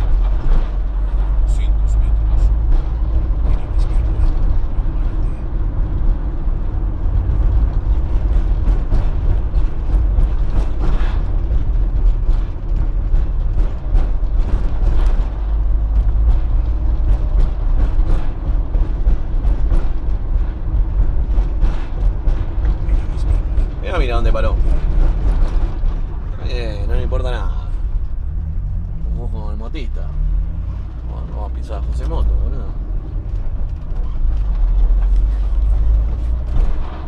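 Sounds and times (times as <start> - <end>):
body rattles and creaks: 0.0 - 37.0
van engine and road rumble: 0.0 - 37.0.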